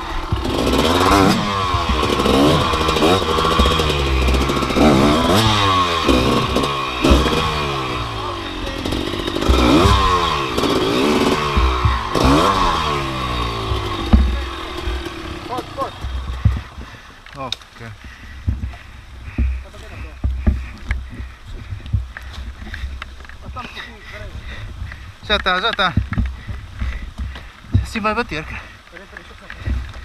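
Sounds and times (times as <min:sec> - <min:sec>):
dirt bike engine revving: 0:00.0 - 0:17.1.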